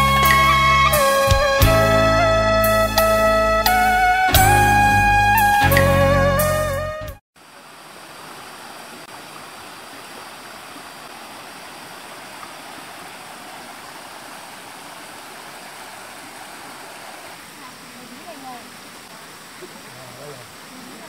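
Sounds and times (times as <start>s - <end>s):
guitar music: 0.0s - 7.2s
distant waterfall: 0.0s - 21.0s
water rushing over rocks: 7.4s - 21.0s.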